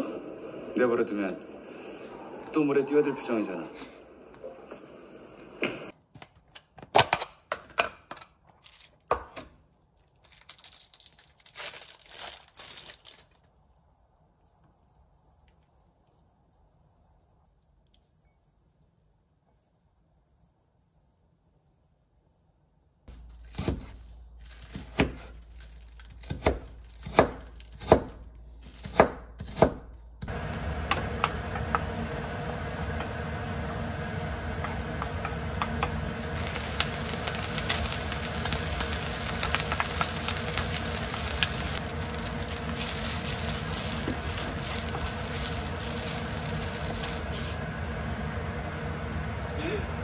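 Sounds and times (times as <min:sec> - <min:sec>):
knife chopping on cutting board: 0:26.2 - 0:28.2, 0:28.8 - 0:29.9
food sizzling in oil: 0:30.3 - 0:47.2.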